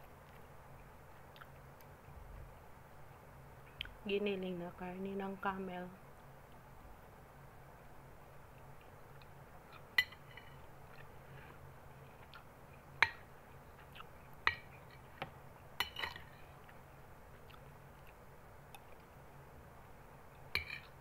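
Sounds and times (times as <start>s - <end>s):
metal spoon clinking on glass bowl: 10.0s - 10.6s, 20.5s - 20.9s.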